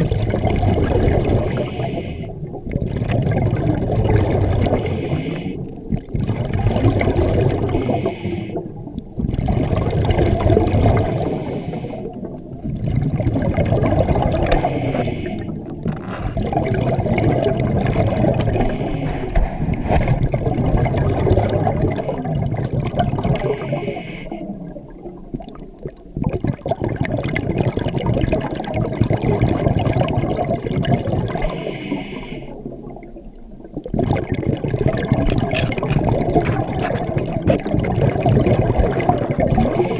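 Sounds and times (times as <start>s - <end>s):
gurgling exhaled bubbles: 0.0s - 39.9s
regulator hiss on inhalation: 4.8s - 5.6s, 7.8s - 8.6s, 11.1s - 12.1s, 14.6s - 15.6s, 18.6s - 19.4s, 23.4s - 24.4s, 31.5s - 32.6s.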